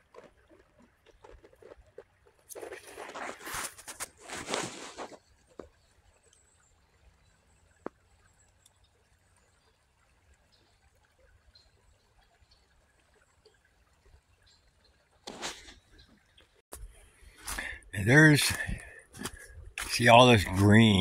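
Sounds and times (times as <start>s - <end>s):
soft ticks: 7.7s - 9.0s.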